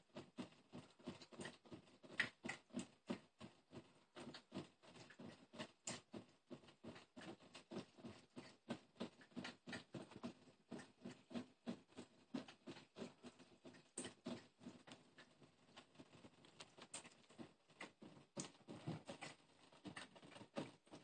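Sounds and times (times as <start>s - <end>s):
cat lapping water: 0.1s - 21.0s.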